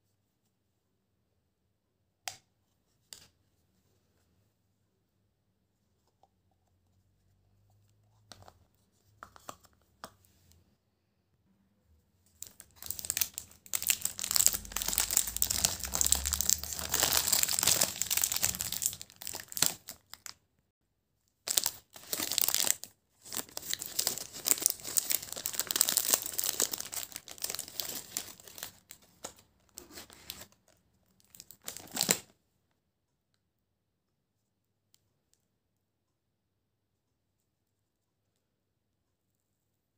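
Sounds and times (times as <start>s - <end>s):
plastic wrapper crinkling and tearing: 12.4s - 20.4s, 21.4s - 30.6s, 31.2s - 32.3s.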